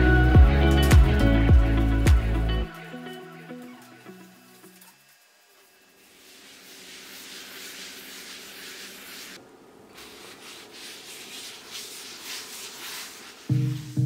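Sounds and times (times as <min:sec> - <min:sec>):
music with a beat: 0:00.0 - 0:04.0, 0:13.5 - 0:14.0
cloth scrubbing wood surface: 0:06.0 - 0:14.0.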